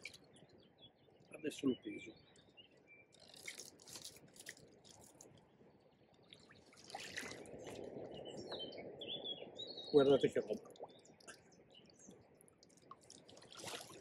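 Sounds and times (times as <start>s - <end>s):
water dripping: 0.0s - 0.3s, 3.1s - 5.4s, 6.1s - 8.7s, 10.5s - 14.0s
water splashing and trickling: 0.0s - 0.6s, 2.3s - 14.0s
wet net clicks: 3.1s - 5.4s.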